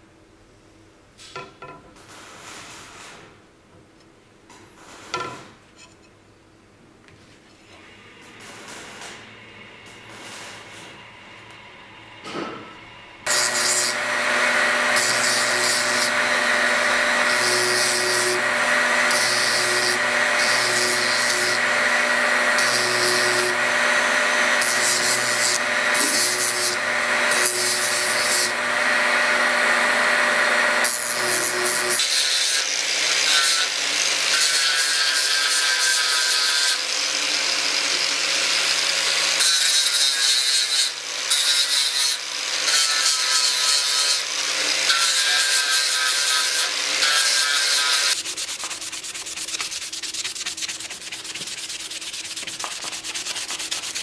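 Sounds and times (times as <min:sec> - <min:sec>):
grinder motor hum: 0:13.2 - 0:31.9
blade scraping on grinder: 0:13.3 - 0:54.0.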